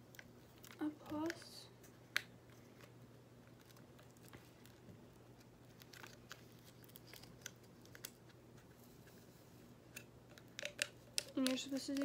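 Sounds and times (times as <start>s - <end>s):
low steady hum: 0.0s - 12.0s
plastic sachet crinkling: 3.4s - 8.3s.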